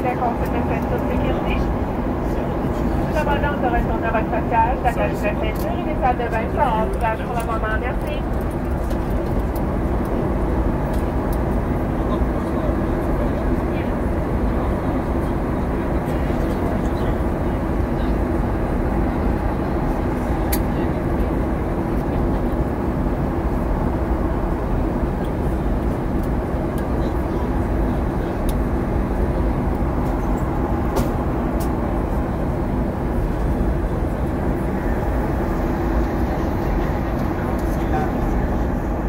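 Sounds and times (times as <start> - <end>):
airliner cabin rush of airflow: 0.0 - 39.0
steady hum: 27.0 - 39.0.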